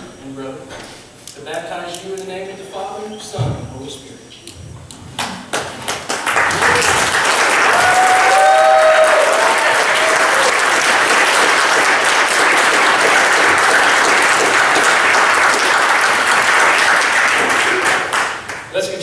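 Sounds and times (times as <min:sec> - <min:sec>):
congregation applauding: 0:05.4 - 0:19.0
people cheering: 0:06.2 - 0:18.4.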